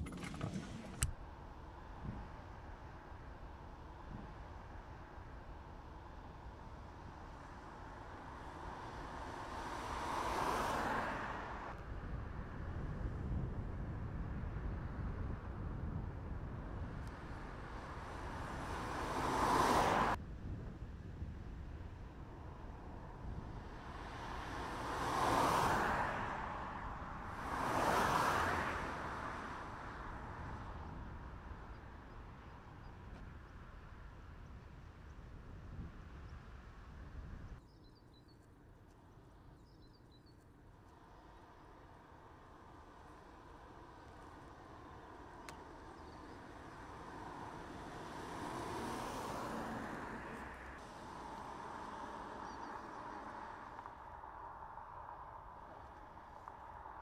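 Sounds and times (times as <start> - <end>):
car driving past: 46.0 - 56.6.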